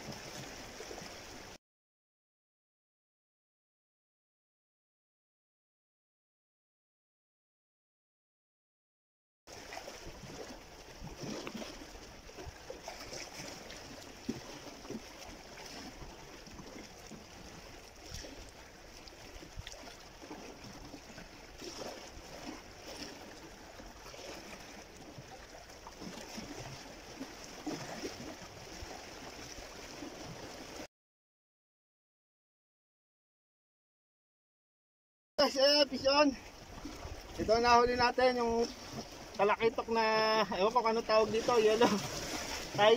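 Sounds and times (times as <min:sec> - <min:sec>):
waves lapping against rocks: 0:00.0 - 0:01.6, 0:09.5 - 0:30.9, 0:35.4 - 0:42.9.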